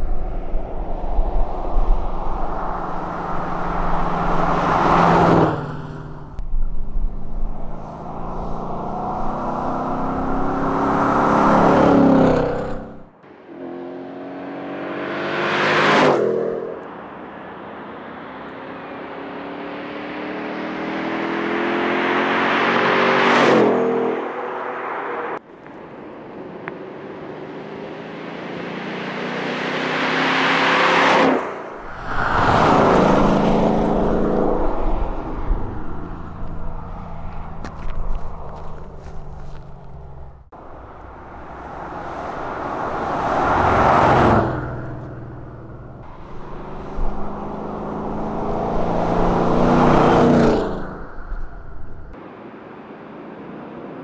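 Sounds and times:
car engine revving hard: 45.7s - 51.0s.

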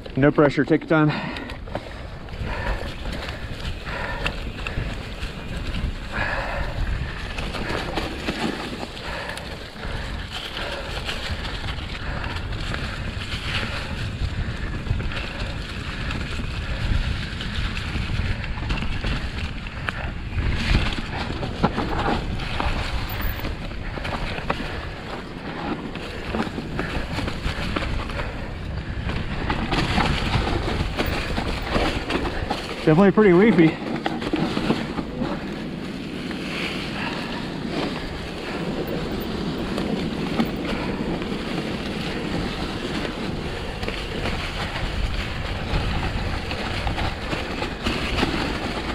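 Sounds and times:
bike tyres through leaves: 0.0s - 48.9s
bike knocks and rattles: 1.1s - 48.9s
wind on microphone: 1.6s - 32.8s, 33.8s - 48.9s.

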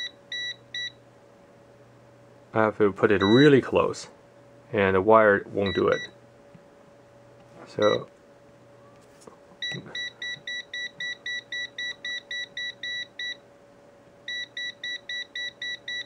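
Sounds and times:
multimeter alarm beeping rapidly: 0.0s - 1.0s, 3.2s - 3.5s, 5.7s - 6.2s, 9.6s - 13.4s, 14.3s - 16.0s.

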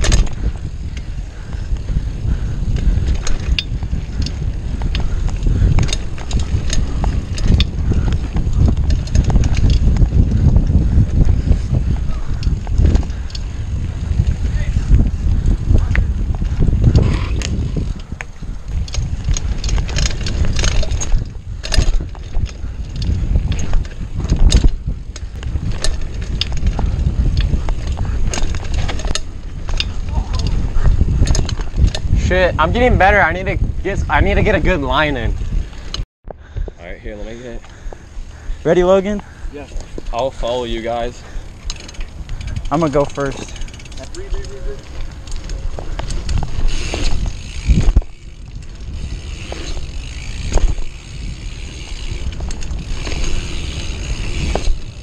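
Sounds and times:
bike clicks and rattles: 0.0s - 55.0s
bike rolling over dirt trail: 0.0s - 55.0s
wind buffeting microphone: 0.0s - 55.0s
tyres rolling on dirt: 36.6s - 55.0s.

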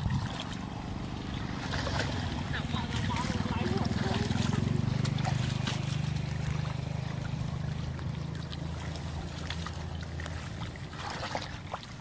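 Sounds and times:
stream water trickling: 0.0s - 12.0s.

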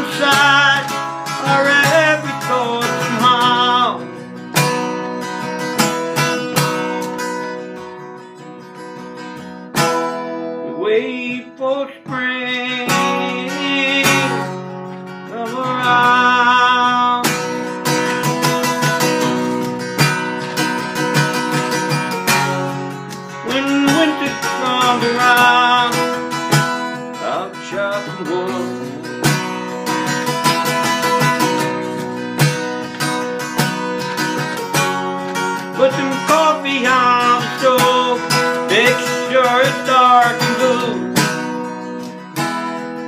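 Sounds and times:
acoustic guitar strumming: 0.0s - 43.0s.

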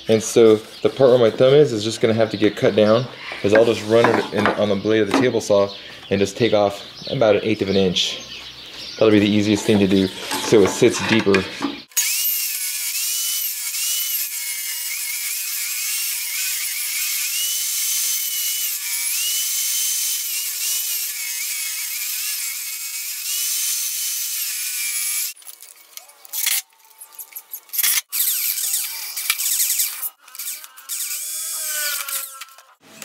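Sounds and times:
table saw cutting wood: 9.6s - 25.4s, 27.7s - 33.0s.

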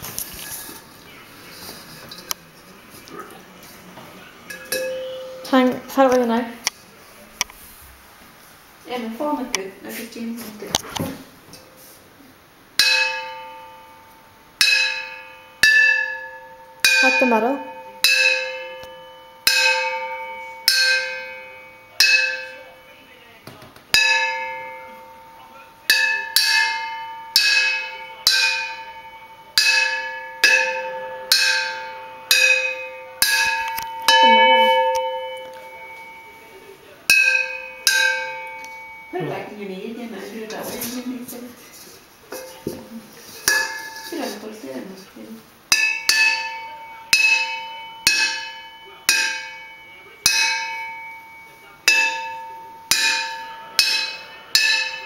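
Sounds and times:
hang drum strikes ringing: 4.5s - 6.0s, 12.8s - 23.0s, 23.9s - 39.7s, 42.3s - 44.5s, 45.7s - 55.0s.

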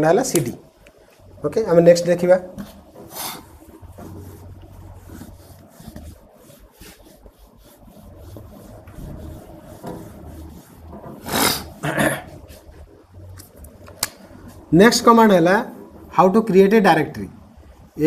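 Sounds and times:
low steady hum: 0.0s - 18.0s
faint rubbing and scraping: 1.6s - 13.2s.

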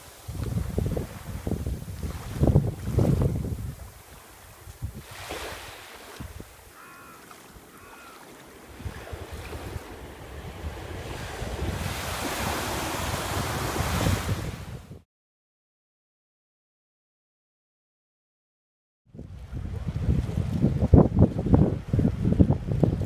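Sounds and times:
wind rumbling on microphone: 0.0s - 7.2s, 7.8s - 15.0s, 19.1s - 23.0s
waves washing over sandy shore: 0.0s - 14.9s.

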